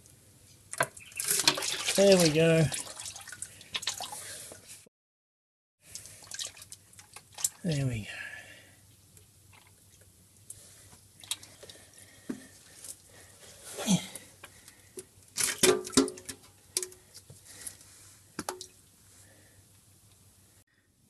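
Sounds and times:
fluid dripping and squishing: 0.7s - 4.2s, 5.8s - 7.9s, 9.1s - 10.6s, 11.2s - 13.0s, 14.4s - 17.8s, 18.4s - 18.8s.

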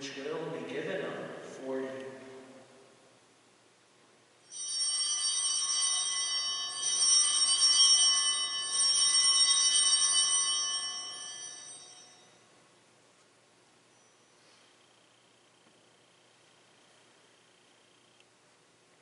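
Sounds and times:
altar bells ringing: 4.5s - 12.5s.

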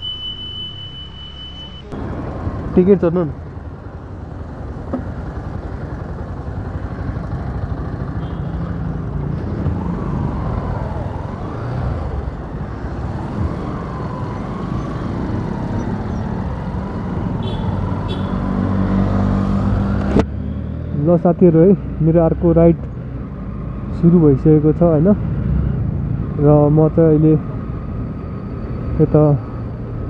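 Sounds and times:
traffic noise: 0.0s - 30.0s
motorcycle engine running: 3.4s - 9.2s.

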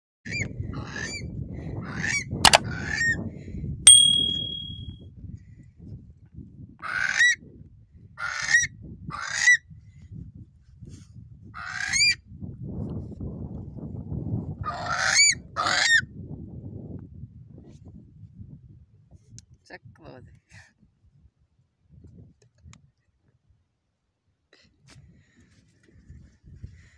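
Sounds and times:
sharp click: 3.9s - 4.8s
brief high tone: 3.9s - 4.9s.

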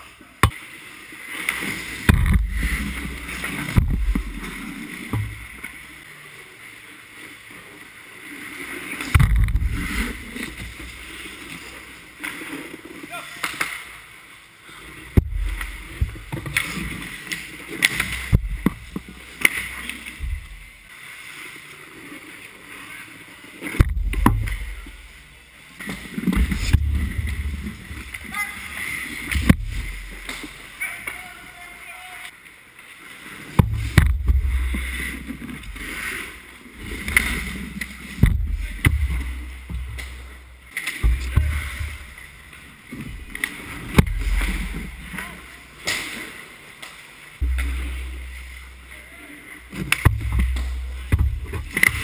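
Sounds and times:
low thuds near net: 2.1s - 5.6s, 9.1s - 10.4s, 15.2s - 16.8s, 17.8s - 20.8s, 23.8s - 25.0s, 26.2s - 28.1s, 29.3s - 30.6s, 33.6s - 36.1s, 36.8s - 42.3s, 43.0s - 45.1s, 47.4s - 49.0s, 49.7s - 52.0s
skate blades scraping ice: 8.3s - 13.8s, 15.8s - 18.4s.

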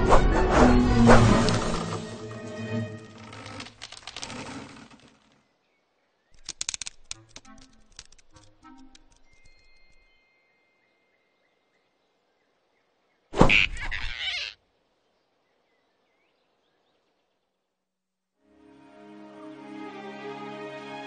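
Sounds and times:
animal squeal: 13.7s - 14.6s.

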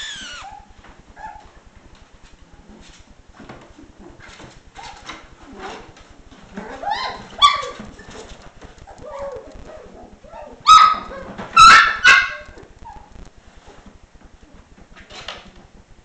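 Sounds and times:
puppies yipping: 0.0s - 1.4s, 6.6s - 8.2s, 8.9s - 13.1s.

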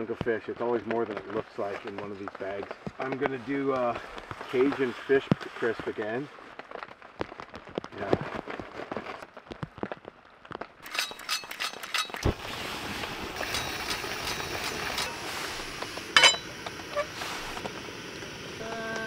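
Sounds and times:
steady hiss: 0.0s - 6.6s, 11.7s - 19.0s
metallic clinks and clicks: 10.8s - 12.2s, 16.2s - 16.5s.

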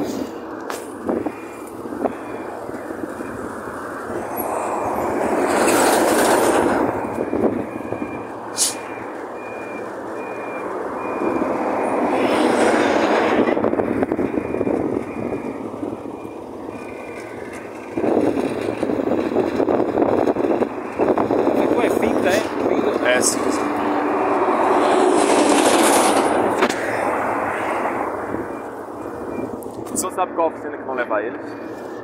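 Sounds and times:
vehicles passing: 0.0s - 32.0s
reversing beeper: 1.2s - 12.2s, 13.5s - 18.2s, 26.2s - 30.1s.

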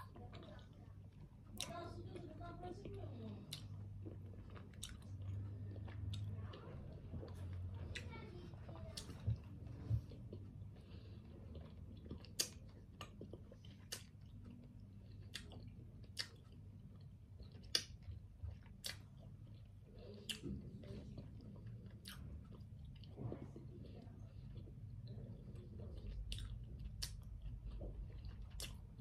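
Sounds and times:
person chewing food: 0.0s - 29.0s
mouth clicks and smacks: 11.6s - 20.7s, 26.0s - 29.0s.

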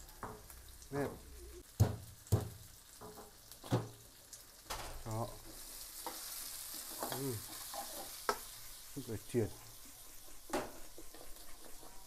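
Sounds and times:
shallots sizzling in hot oil: 0.0s - 12.0s
spatula knocking on pan: 1.0s - 4.0s, 10.1s - 12.0s
spatula stirring and scraping wok: 5.4s - 12.0s.

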